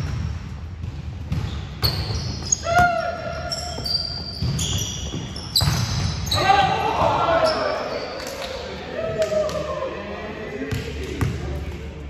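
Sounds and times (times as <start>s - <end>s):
shoe squeaks on court floor: 1.4s - 6.5s.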